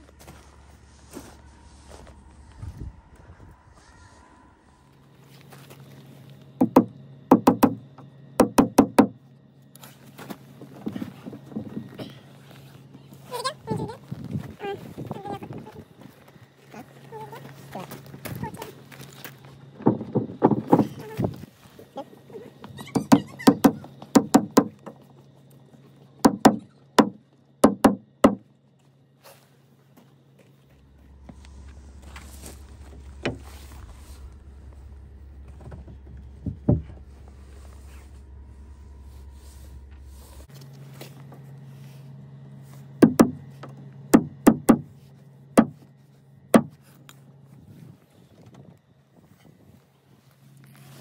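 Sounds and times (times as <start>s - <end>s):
hammer tapping nail into wood: 6.6s - 7.8s, 8.4s - 9.2s, 43.0s - 43.4s
hammer tapping nails into wood: 6.6s - 7.8s, 8.4s - 9.2s, 23.5s - 24.9s, 26.2s - 28.4s, 43.0s - 43.4s.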